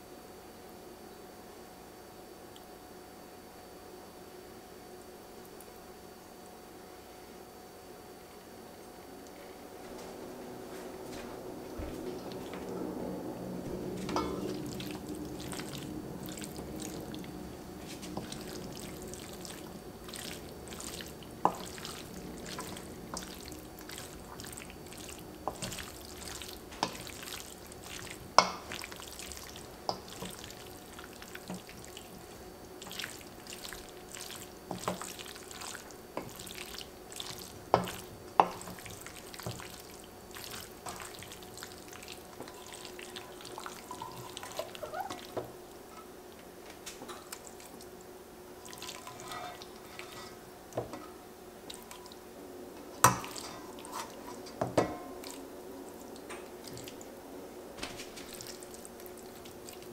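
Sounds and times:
wet filling squelching: 14.0 - 45.4.

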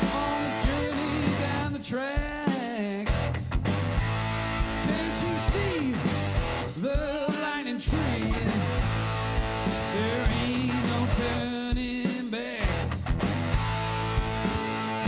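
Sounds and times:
lead guitar bending pitch: 0.0 - 1.8
blues-rock band playing: 0.0 - 15.0.

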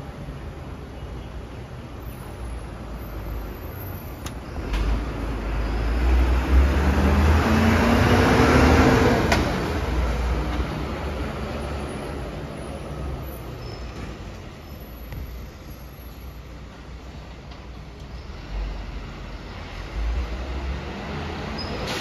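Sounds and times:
diesel truck pulling away: 4.5 - 15.0.

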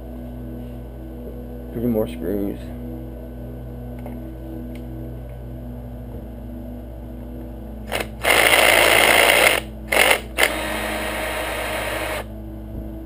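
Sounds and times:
cordless drill motor running: 7.9 - 12.3.

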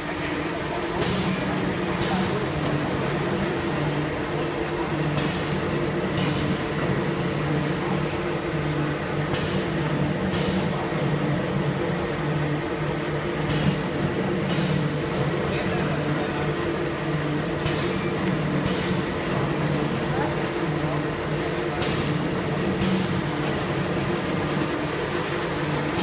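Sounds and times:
machine humming: 0.0 - 26.0.

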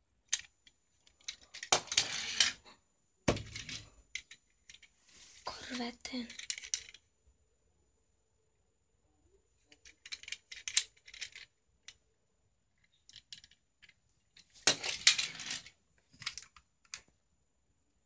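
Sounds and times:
toy cars clicking and rattling: 0.2 - 2.6, 3.3 - 4.9, 5.7 - 7.0, 9.7 - 12.0, 12.8 - 17.1
toy car clattering down: 0.3 - 2.6, 6.2 - 7.0, 9.7 - 12.0, 14.6 - 17.1.

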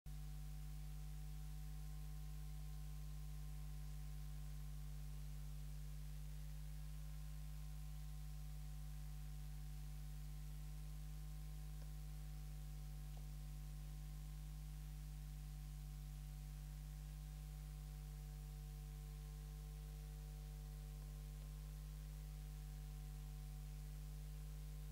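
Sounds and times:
electrical mains hum: 0.1 - 24.9.

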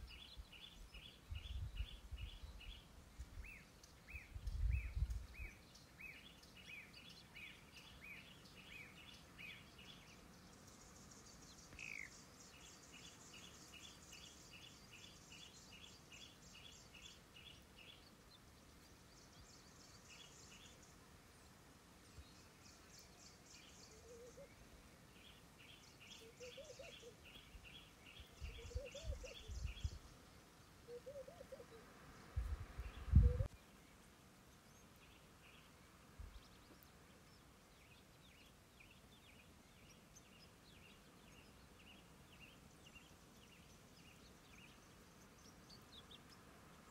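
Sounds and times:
birds chirping: 0.0 - 46.9
low rising and falling bird calls: 22.1 - 30.2, 30.8 - 33.9.

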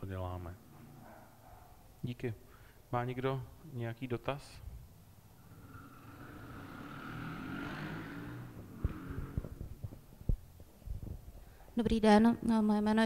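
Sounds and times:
microphone handling thumps: 8.8 - 11.4.

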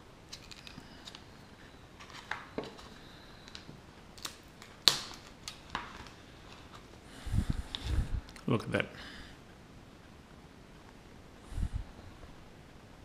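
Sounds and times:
plastic crinkling: 0.3 - 7.0.

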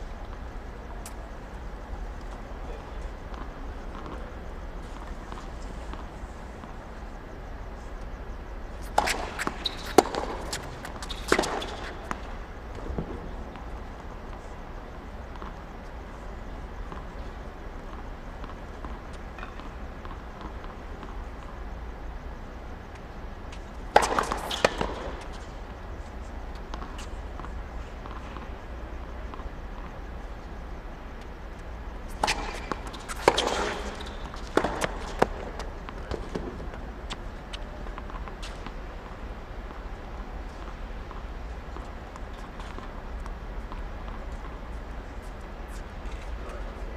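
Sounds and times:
steady low hum: 0.0 - 46.9
tennis balls struck and bouncing: 8.8 - 15.6, 16.4 - 21.7, 22.4 - 30.2, 31.2 - 46.6.

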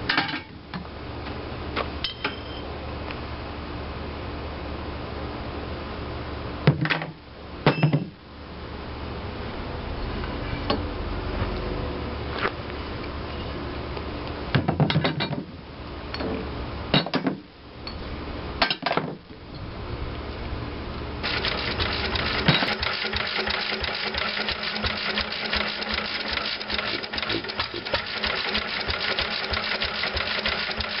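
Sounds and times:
metal parts clanking: 21.2 - 29.0
flywheel engine clattering: 21.2 - 31.0.

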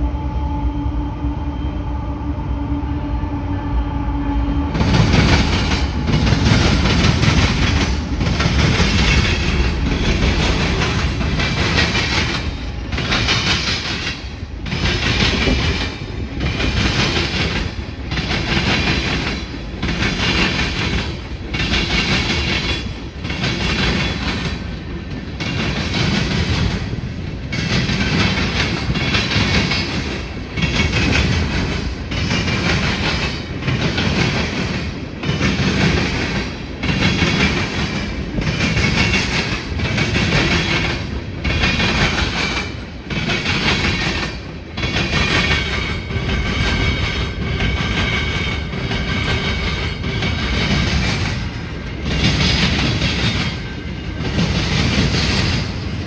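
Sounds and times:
freight train clacking over rails: 3.9 - 56.0.

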